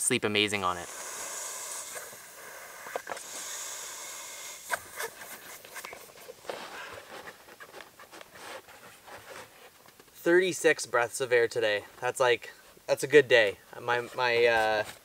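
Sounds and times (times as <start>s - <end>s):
breath blown into valve: 0.7s - 5.9s.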